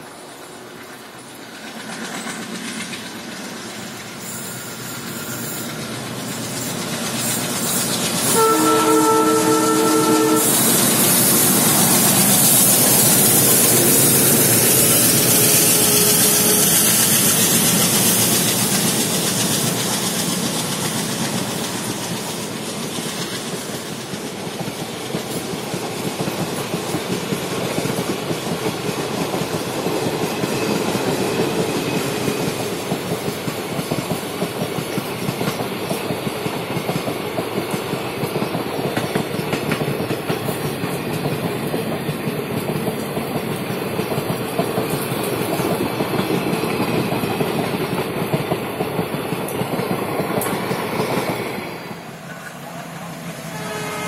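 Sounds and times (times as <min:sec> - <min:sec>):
diesel locomotives passing: 0:00.0 - 0:54.0
wheels clacking over rail joints: 0:00.8 - 0:04.3, 0:17.1 - 0:51.6
multi-tone train horn: 0:08.2 - 0:11.4, 0:13.6 - 0:17.2, 0:53.3 - 0:54.0.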